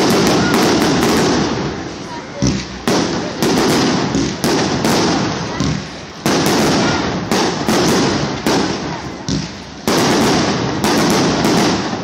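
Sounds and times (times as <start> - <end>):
fireworks shells bursting: 0.0 - 12.0.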